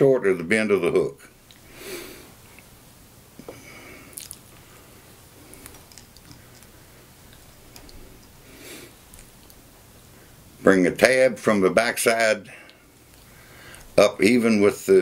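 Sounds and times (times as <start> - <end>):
low steady hum: 0.0 - 15.0
fingers clicking and rustling: 5.5 - 8.4, 9.1 - 9.6.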